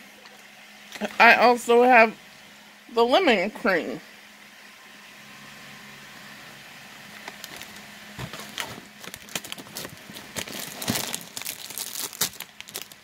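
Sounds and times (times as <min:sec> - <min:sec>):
plastic wrapper crinkling: 0:07.2 - 0:13.0.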